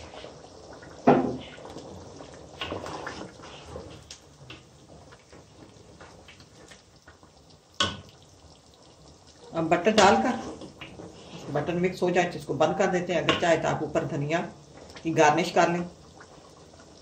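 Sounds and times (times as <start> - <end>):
gravy sloshing in a pot: 0.0 - 12.2
wooden spoon scraping a pot: 1.3 - 4.1, 9.8 - 11.8.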